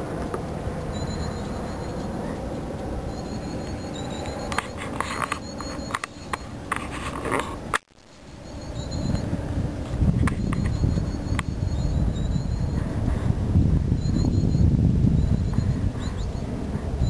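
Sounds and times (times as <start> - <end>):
low rumble: 7.6 - 17.0
bird singing short even notes: 8.1 - 9.3, 10.4 - 12.8.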